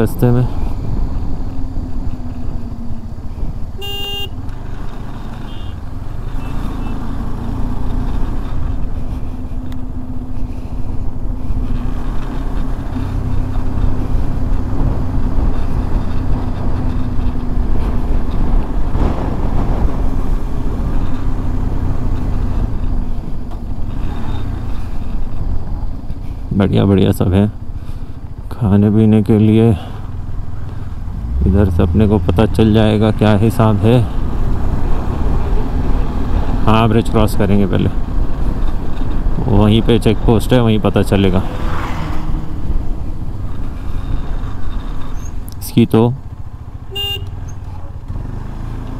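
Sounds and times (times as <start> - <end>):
vehicle horn toot: 3.8 - 4.4, 5.4 - 5.8, 46.9 - 47.4.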